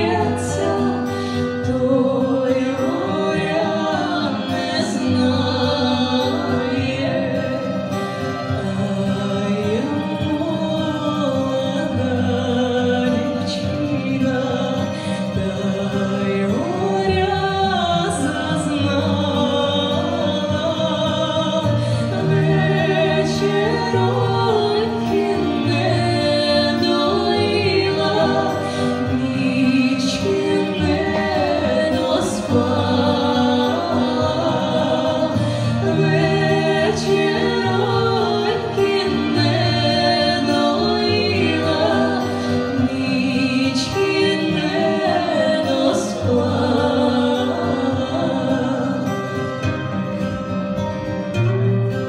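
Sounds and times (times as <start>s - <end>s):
women's vocal group singing in harmony: 0.0s - 50.5s.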